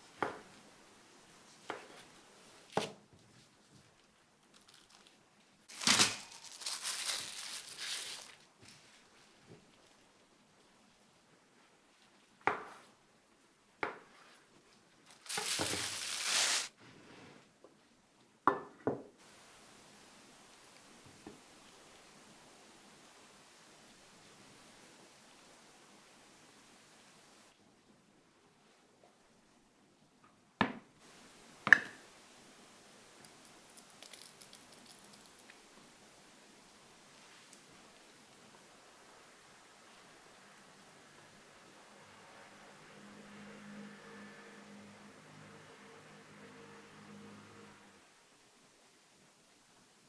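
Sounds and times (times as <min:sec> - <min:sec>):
rustling scraping noise: 0:04.6 - 0:09.9, 0:15.1 - 0:17.5.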